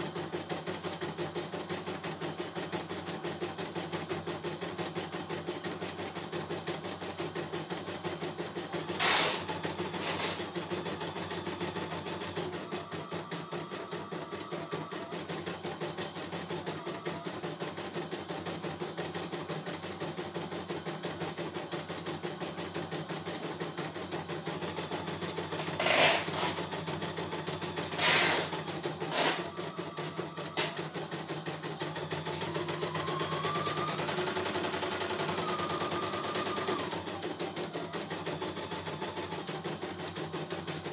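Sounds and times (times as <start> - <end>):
embroidery machine stitching: 0.0 - 40.9.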